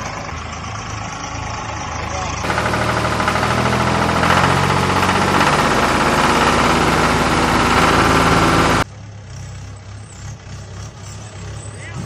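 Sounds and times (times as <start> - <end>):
tractor engine running: 0.0 - 8.9.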